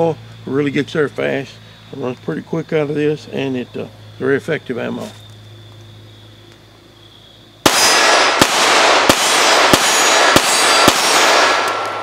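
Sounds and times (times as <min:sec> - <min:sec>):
pistol shots: 0:07.6 - 0:12.0.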